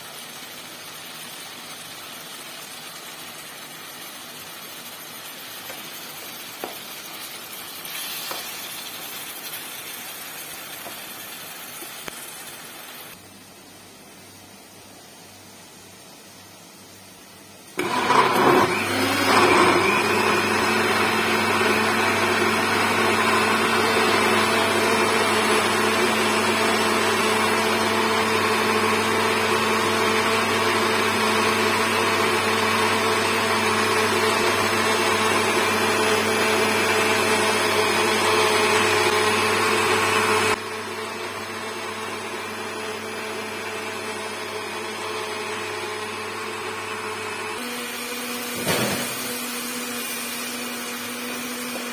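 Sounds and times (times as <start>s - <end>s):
electric blender running: 17.8s - 51.9s.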